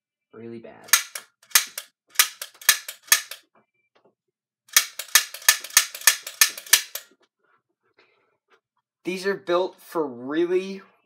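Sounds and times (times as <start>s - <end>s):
toy blaster firing plastic snaps: 0.9s - 3.4s, 4.7s - 7.1s.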